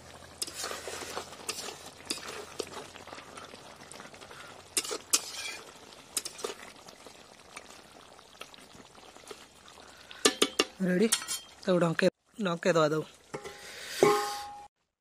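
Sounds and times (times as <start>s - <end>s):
curry bubbling faintly: 0.0s - 14.7s
ladle scraping metal pan: 0.3s - 3.2s, 4.8s - 6.6s, 10.2s - 11.6s, 13.3s - 14.7s.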